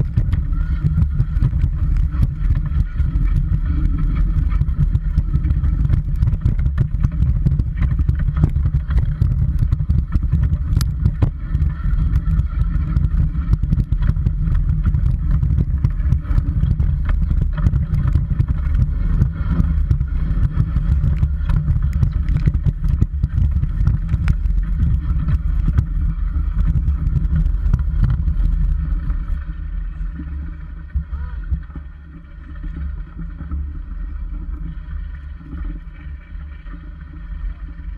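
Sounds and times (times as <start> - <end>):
rattling and clicks of stones: 0.0 - 29.5
wheels rumbling on gravel: 0.0 - 37.9.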